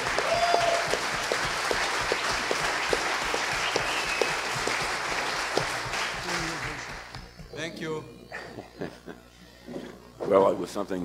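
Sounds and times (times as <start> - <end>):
audience applauding: 0.0 - 7.5
close hands clapping: 0.0 - 7.6.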